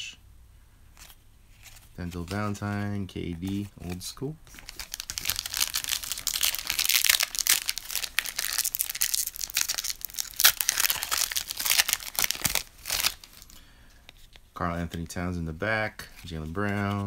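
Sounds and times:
wrapper tearing and crinkling: 3.4s - 13.6s.

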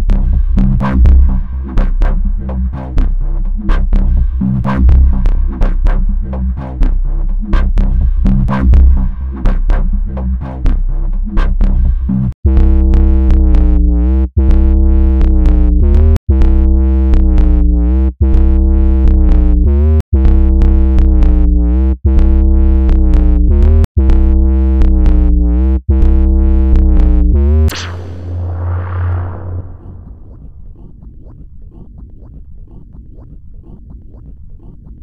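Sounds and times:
electronic techno music: 23.0s - 35.0s.

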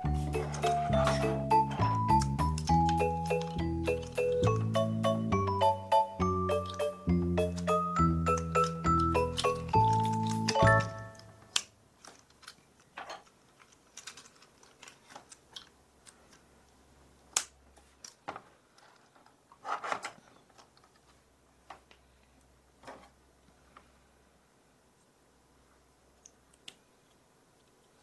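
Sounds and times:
plastic toy joints clicking: 0.4s - 4.8s, 6.5s - 16.2s.

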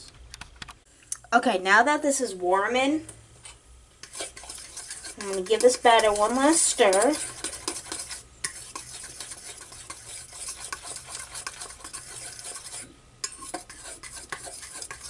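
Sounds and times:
utensil stirring batter in bowl: 4.0s - 15.0s.

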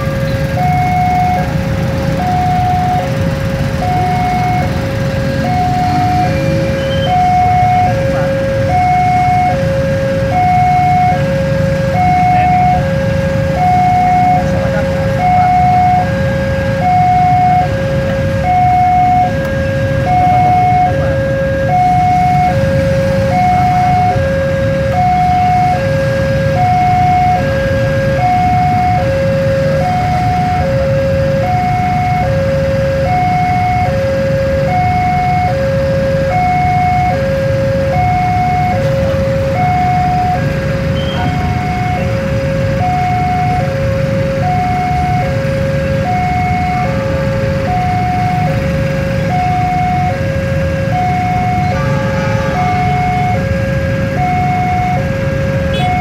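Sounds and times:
freight train rumbling past: 0.0s - 9.0s, 50.8s - 55.8s
level crossing alarm chime: 0.0s - 34.0s, 34.6s - 56.0s
motorcycles idling: 0.0s - 56.0s.

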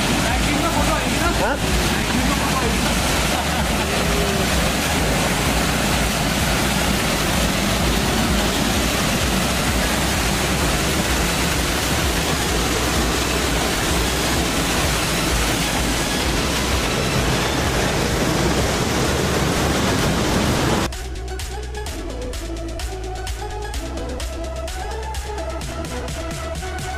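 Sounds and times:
waterfall splashing into pool: 0.0s - 20.9s.

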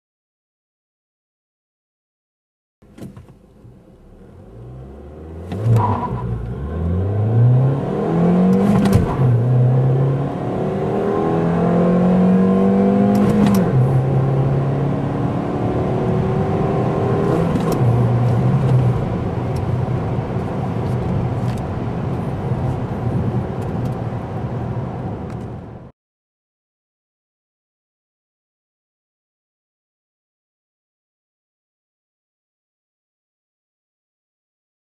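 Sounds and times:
road and tyre noise: 2.8s - 25.9s
car engine accelerating: 3.4s - 25.6s.

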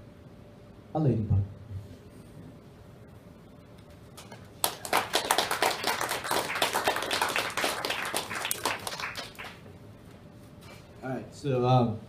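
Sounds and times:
audience applauding: 4.6s - 9.7s.

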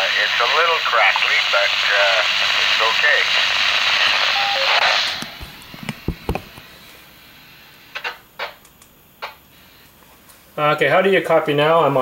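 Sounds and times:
radio static hiss: 0.0s - 12.0s
low handling thumps: 5.4s - 6.6s.

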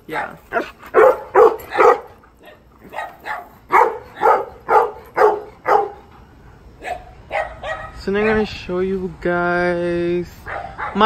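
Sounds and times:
dog barking: 0.1s - 6.0s, 6.8s - 8.4s, 10.4s - 11.0s.

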